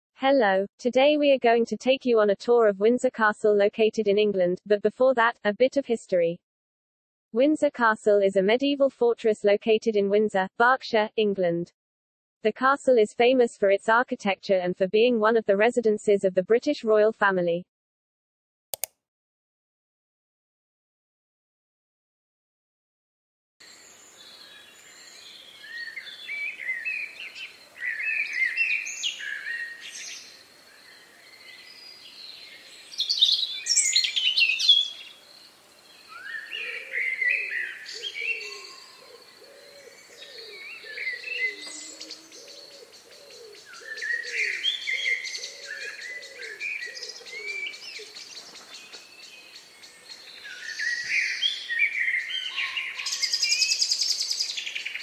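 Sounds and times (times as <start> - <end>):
songbirds chirping and singing: 24.0 - 55.0
low hooting call: 40.3 - 43.0.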